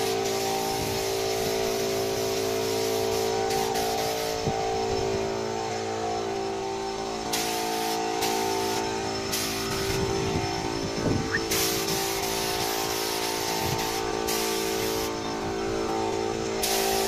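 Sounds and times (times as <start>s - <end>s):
spray gun hissing: 0.0s - 4.6s, 7.3s - 10.2s, 10.9s - 15.5s, 16.6s - 17.0s
air compressor humming: 0.0s - 17.0s.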